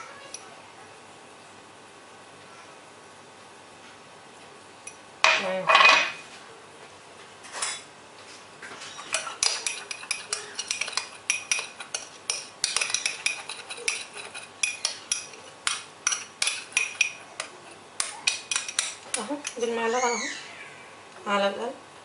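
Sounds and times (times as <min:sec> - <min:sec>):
spoon clatter: 0:09.0 - 0:19.7
spoon clinking on glass bowl: 0:09.1 - 0:17.5.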